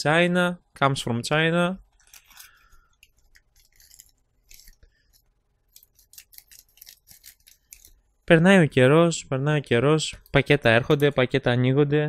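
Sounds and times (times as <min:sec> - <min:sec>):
plastic packaging crinkling: 0:01.9 - 0:08.0
scissors snipping: 0:02.0 - 0:08.0.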